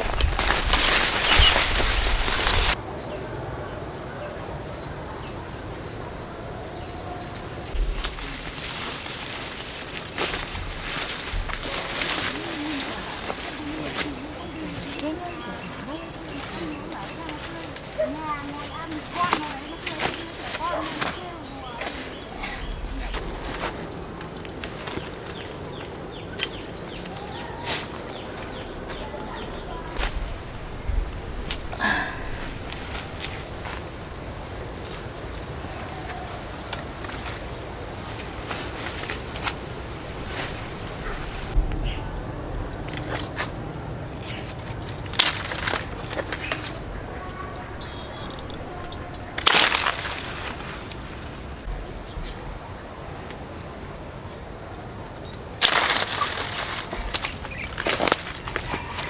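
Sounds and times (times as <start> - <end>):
clicks and rustles: 0.0 - 2.8
quick falling bird chirps: 0.0 - 2.8
high insect drone: 0.0 - 59.0.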